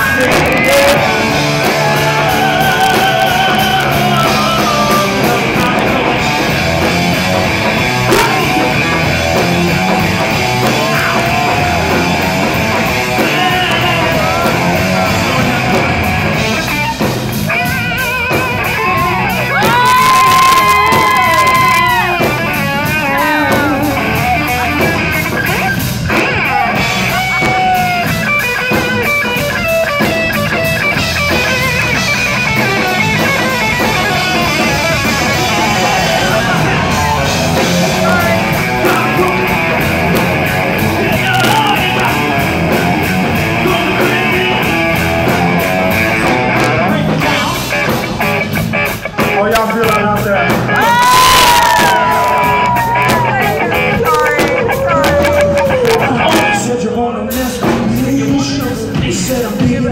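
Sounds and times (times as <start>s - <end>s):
person singing through pa: 0.0s - 6.6s, 10.5s - 16.6s, 18.7s - 24.9s, 33.8s - 45.0s, 50.4s - 59.9s
drum kit: 0.0s - 59.9s
electric guitar: 0.0s - 59.9s.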